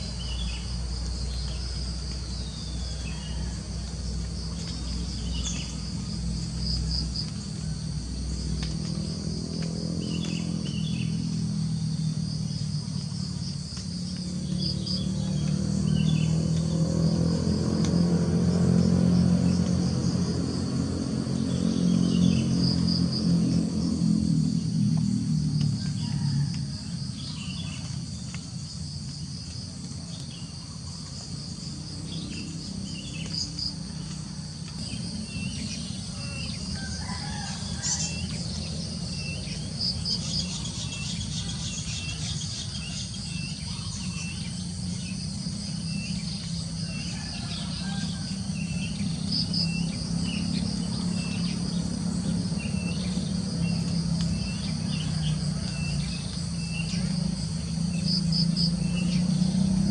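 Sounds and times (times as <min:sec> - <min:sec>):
insects trilling: 0:00.0 - 0:59.9
rooster crowing: 0:01.5 - 0:04.6, 0:25.7 - 0:28.0, 0:32.3 - 0:44.8, 0:45.8 - 0:59.9.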